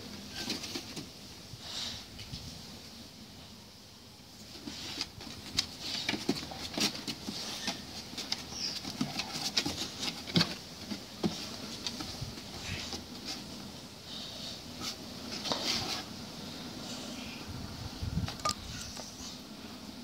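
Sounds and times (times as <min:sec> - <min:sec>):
dog claws on wooden decking: 0:04.5 - 0:13.4.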